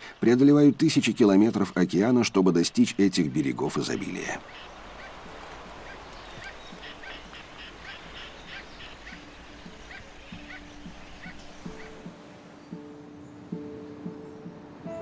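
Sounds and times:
background noise wash: 0.0s - 15.0s
seabirds calling: 0.0s - 15.0s
soft plucked music: 5.2s - 15.0s.

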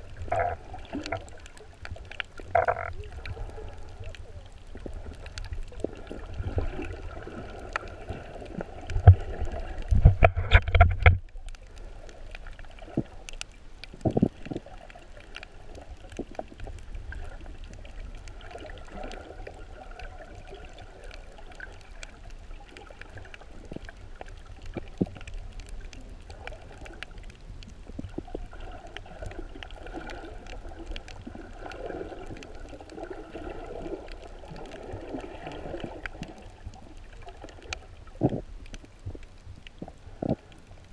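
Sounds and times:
faint crackling: 0.0s - 40.9s.

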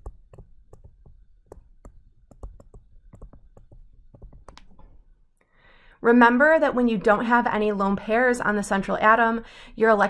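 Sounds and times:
stylus clicking on a tablet: 0.0s - 4.9s.

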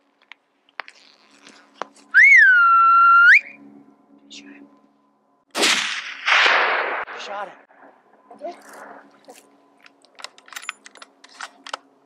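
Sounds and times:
loud whistle: 2.1s - 3.6s.

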